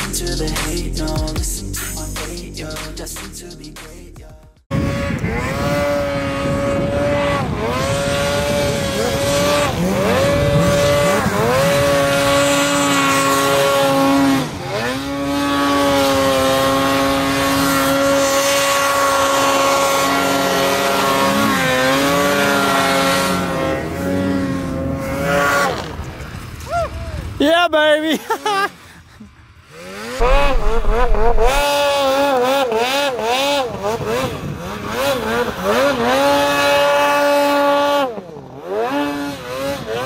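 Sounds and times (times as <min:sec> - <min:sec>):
snowmobile engine revving: 0:04.7 - 0:26.2, 0:29.6 - 0:40.0.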